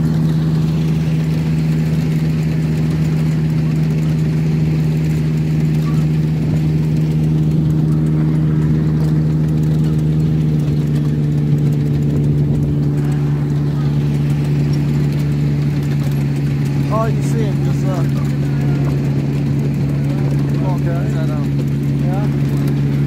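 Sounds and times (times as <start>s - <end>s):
locomotive engine humming: 0.0s - 23.0s.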